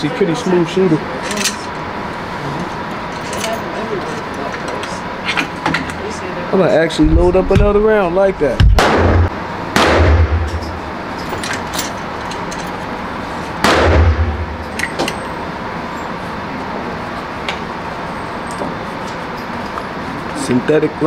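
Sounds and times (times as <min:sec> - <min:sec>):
steady background noise: 0:00.0 - 0:21.0
suppressed pistol shots: 0:08.8 - 0:10.8, 0:13.6 - 0:14.7.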